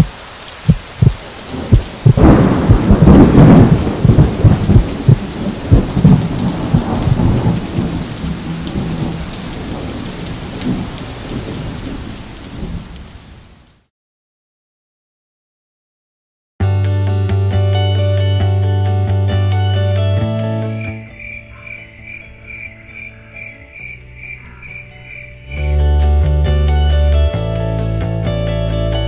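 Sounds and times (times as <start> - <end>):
steady rain: 0.0 - 13.9, 20.8 - 25.7
rumbling thunder: 0.7 - 13.2.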